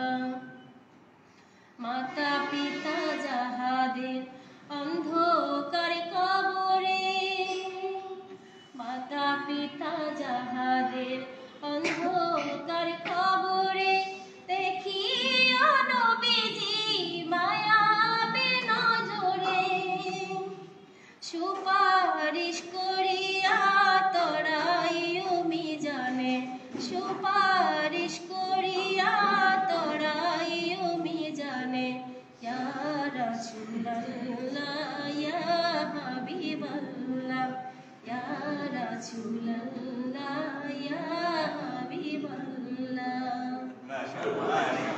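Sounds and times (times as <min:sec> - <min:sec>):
singer breathing: 0:01.2 - 0:01.8
woman singing unaccompanied: 0:01.8 - 0:43.7.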